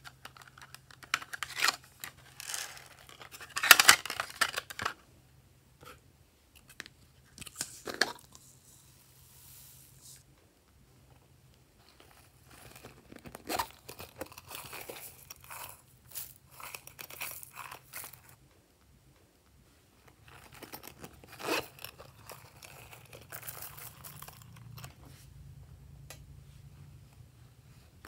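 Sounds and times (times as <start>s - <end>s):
sequins and glitter crackling: 20.2s - 24.8s.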